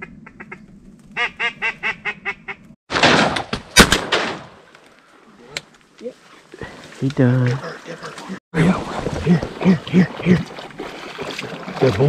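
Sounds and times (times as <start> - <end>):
shotgun shot: 2.9 - 4.6.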